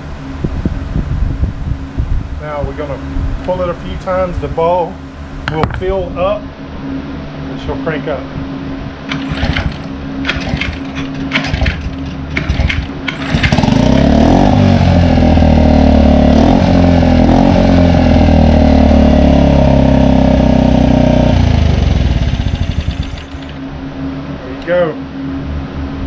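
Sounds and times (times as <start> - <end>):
recoil starter cord pulls: 9.1 - 13.8, 22.3 - 23.6
outboard engine running: 9.1 - 14.0, 20.4 - 23.6.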